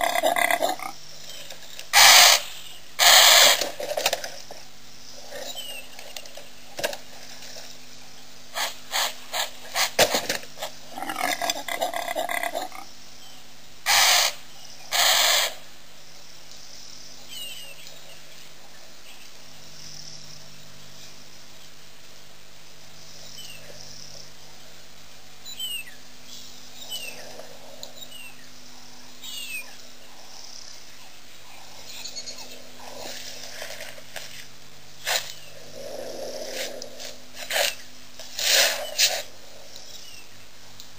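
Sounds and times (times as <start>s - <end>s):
faint low hum: 0.0s - 40.9s.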